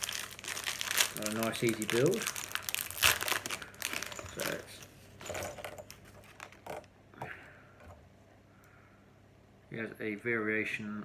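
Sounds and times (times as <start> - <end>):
plastic bag crinkling: 0.0 - 6.9.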